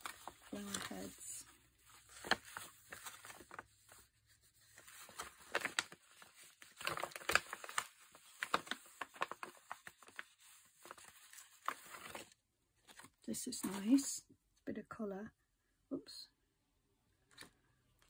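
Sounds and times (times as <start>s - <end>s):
dried flowers crinkling: 0.0s - 3.7s, 4.8s - 11.1s.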